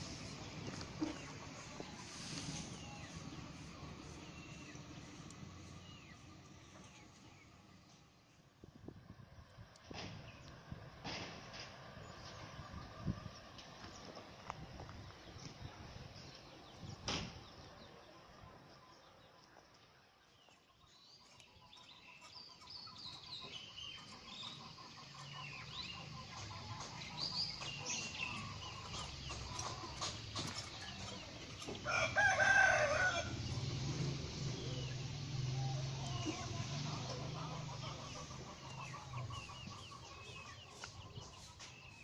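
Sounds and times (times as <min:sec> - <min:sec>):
chicken clucks and chirps: 0:00.0 - 0:07.6, 0:15.4 - 0:42.0
rooster crowing: 0:31.8 - 0:33.6.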